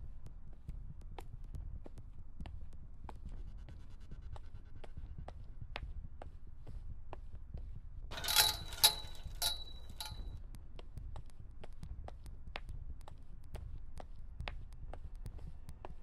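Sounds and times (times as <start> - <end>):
clatter with ringing tone: 8.1 - 10.4.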